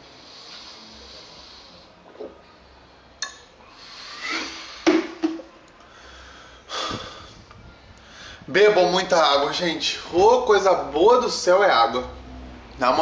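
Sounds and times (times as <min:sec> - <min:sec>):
man gasping for breath: 0:05.9 - 0:08.5.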